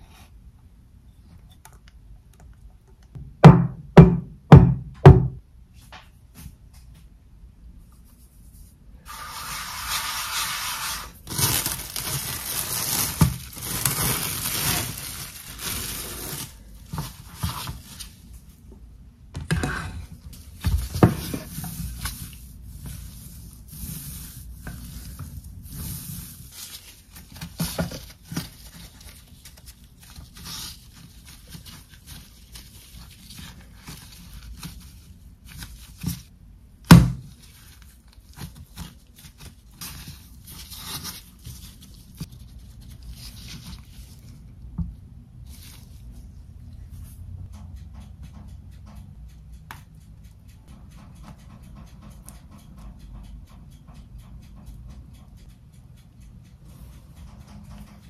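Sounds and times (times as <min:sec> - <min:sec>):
food rustling and rubbing: 0:08.1 - 0:18.6, 0:20.3 - 0:36.3, 0:37.3 - 0:44.6, 0:45.4 - 0:46.3.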